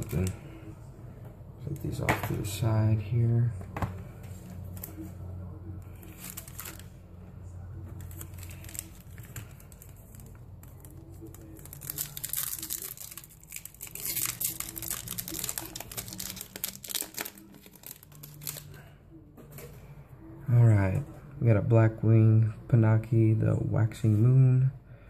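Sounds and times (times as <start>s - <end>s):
foil wrapper crinkling and tearing: 5.9s - 6.9s, 8.0s - 18.8s.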